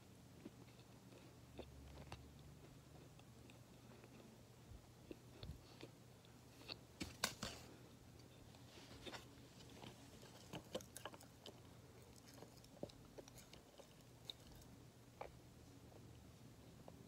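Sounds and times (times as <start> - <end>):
person chewing crunchy food: 0.4 - 4.4, 8.2 - 16.1.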